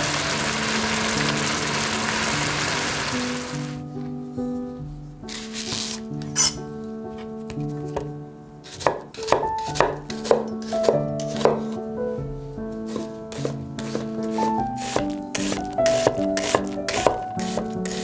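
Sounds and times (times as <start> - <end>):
soft background music: 0.3 - 18.0
knife chopping on wooden board: 8.7 - 11.8, 12.9 - 18.0.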